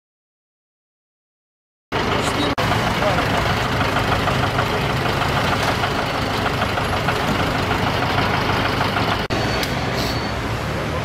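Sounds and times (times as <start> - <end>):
vehicle engine running: 1.9 - 9.4
road and cabin noise: 1.9 - 11.0.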